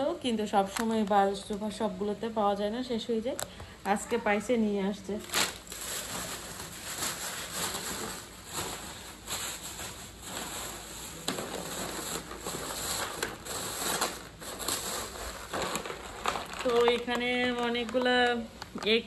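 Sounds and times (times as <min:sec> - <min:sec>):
plastic bags rustling and crinkling: 0:05.0 - 0:19.0.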